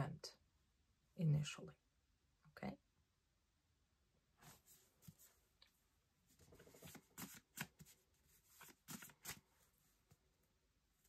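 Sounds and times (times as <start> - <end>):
paper cards flicking and rustling: 6.5 - 9.6.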